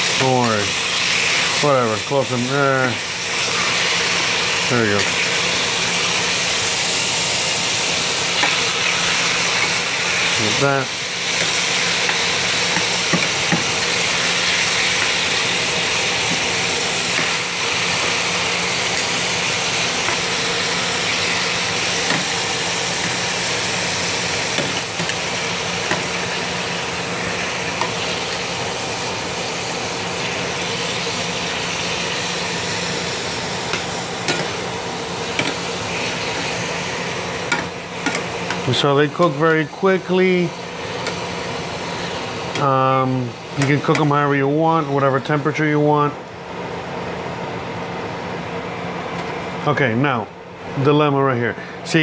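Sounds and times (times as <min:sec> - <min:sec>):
steaks sizzling in a skillet: 0:00.0 - 0:38.8
range hood fan hum: 0:00.0 - 0:52.0.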